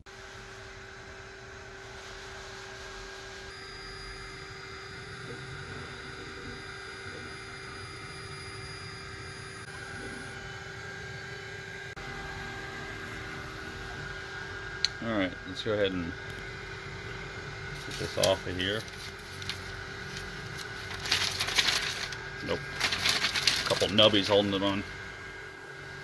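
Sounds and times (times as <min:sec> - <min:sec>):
laser cutter humming: 0:00.1 - 0:26.0
fan noise: 0:09.6 - 0:26.0.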